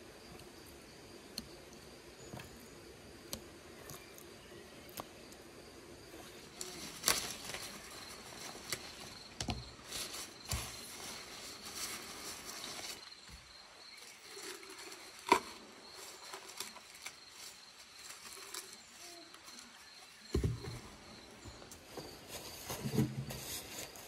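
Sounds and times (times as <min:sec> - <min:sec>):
leafy branches rustling: 0:06.2 - 0:20.2.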